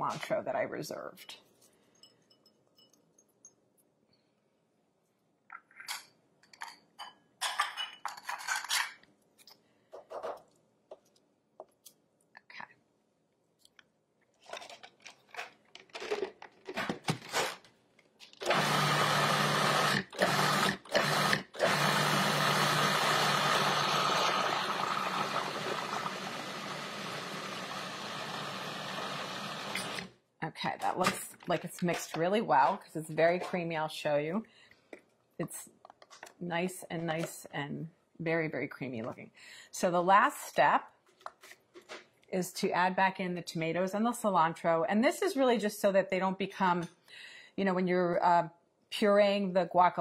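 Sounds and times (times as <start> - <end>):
food processor motor running: 18.4 - 30.1.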